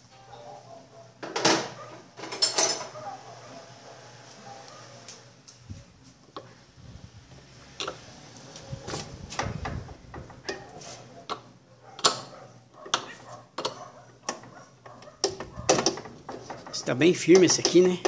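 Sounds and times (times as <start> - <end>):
wrench clicking on metal bolts: 15.2 - 18.0.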